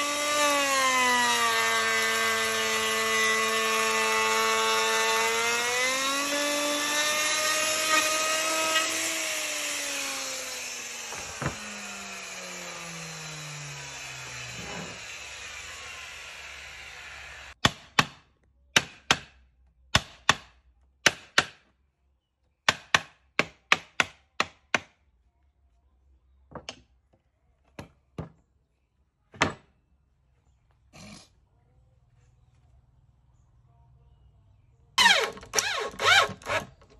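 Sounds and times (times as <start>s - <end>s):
electric router whining: 0.0s - 17.6s, 35.0s - 36.8s.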